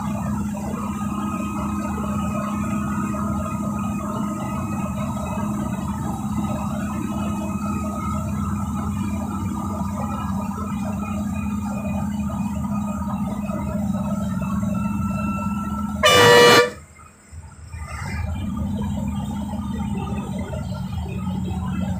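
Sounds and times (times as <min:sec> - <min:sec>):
bus engine droning: 0:00.0 - 0:21.9
bus horn blast: 0:15.8 - 0:16.9.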